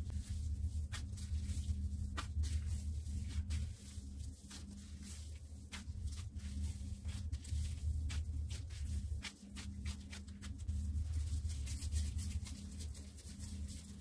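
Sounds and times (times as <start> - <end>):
gloved hands kneading dough: 0.0 - 14.0
steady low hum: 0.0 - 14.0.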